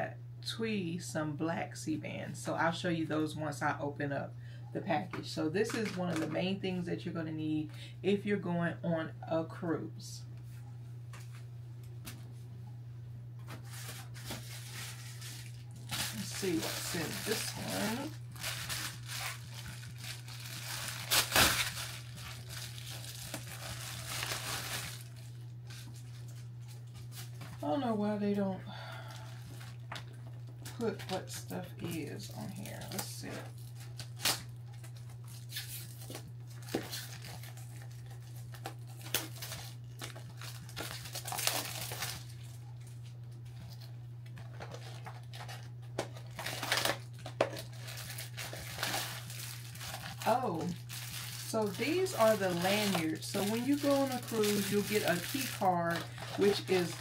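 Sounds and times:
steady low hum: 0:00.0 - 0:57.0
plastic mailer crinkling and tearing: 0:05.6 - 0:06.3, 0:13.5 - 0:27.6, 0:29.0 - 0:57.0.

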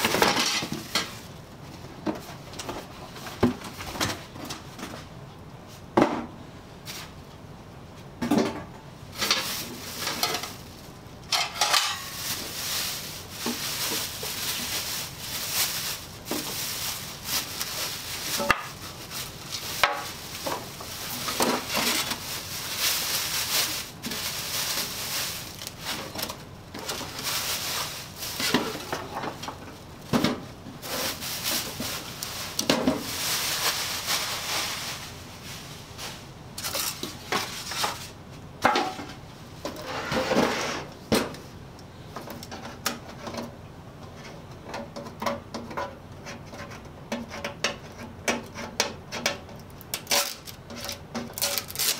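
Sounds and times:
plastic wrap crinkling: 0:09.2 - 0:30.1, 0:30.8 - 0:38.2, 0:50.0 - 0:51.9
foam packing rubbing: 0:12.0 - 0:29.3, 0:30.8 - 0:38.1, 0:51.3 - 0:51.9.

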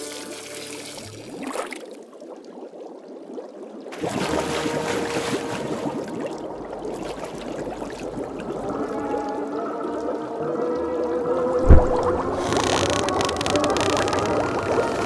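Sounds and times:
cartoon water rushing and gurgling: 0:03.9 - 0:15.0.

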